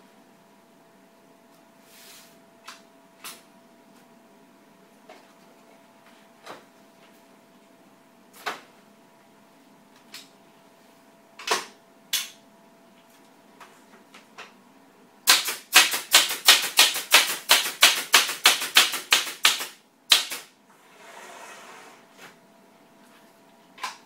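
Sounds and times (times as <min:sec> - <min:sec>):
staple gun firing: 0:15.3 - 0:20.5.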